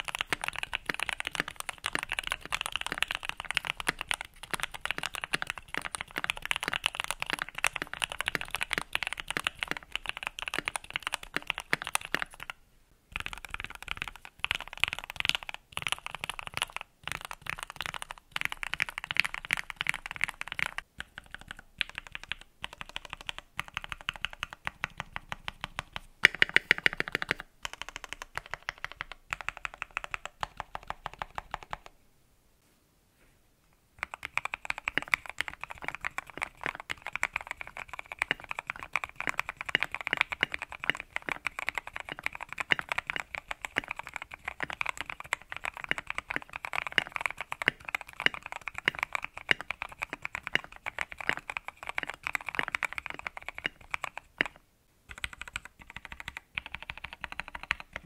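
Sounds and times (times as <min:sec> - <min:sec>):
mechanical keyboard typing: 0:00.0 - 0:31.9, 0:34.0 - 0:58.0.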